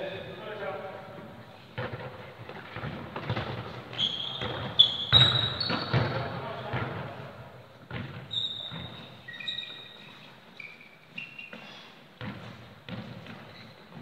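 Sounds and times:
trainers squeaking on floor: 0:03.9 - 0:06.4, 0:08.2 - 0:12.0, 0:13.4 - 0:14.0.

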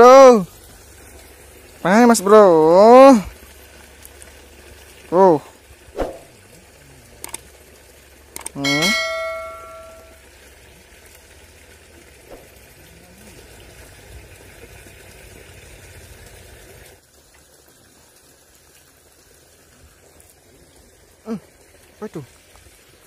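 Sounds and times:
flowing river water: 0:00.0 - 0:23.0.

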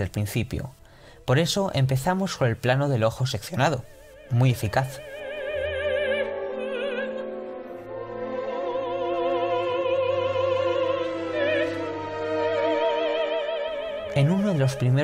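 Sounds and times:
operatic voice singing: 0:03.6 - 0:15.0
low orchestral accompaniment: 0:04.1 - 0:15.0.

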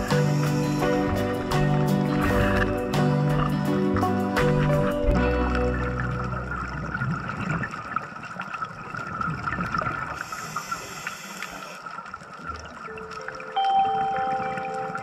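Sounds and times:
underwater watery hiss: 0:00.0 - 0:02.7, 0:10.1 - 0:11.9
music with held notes: 0:00.0 - 0:06.8.

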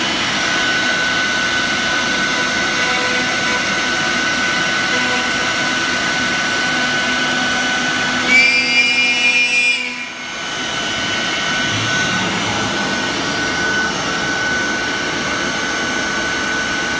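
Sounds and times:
high ringing whine: 0:00.0 - 0:16.9
router spindle whine: 0:00.0 - 0:16.9.

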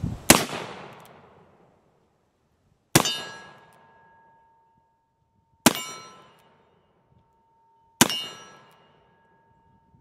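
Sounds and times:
metallic ringing: 0:03.0 - 0:10.0.

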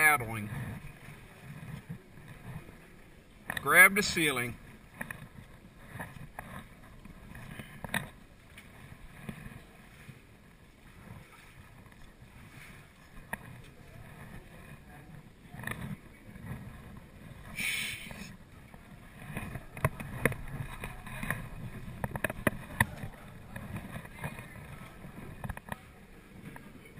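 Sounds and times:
water noise along kayak hull: 0:00.0 - 0:26.9
brief hiss: 0:17.6 - 0:18.3.

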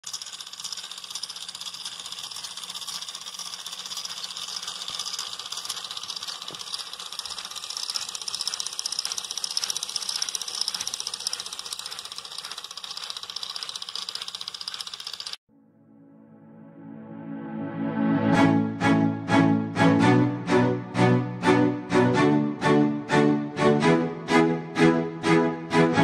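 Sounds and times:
small gear motor buzzing rattle: 0:00.0 - 0:15.4.

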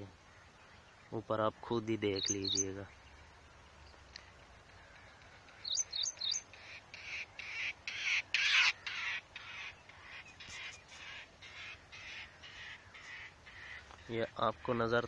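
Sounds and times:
rough bird calls: 0:00.0 - 0:15.0
bird rising chirps: 0:02.1 - 0:07.2.

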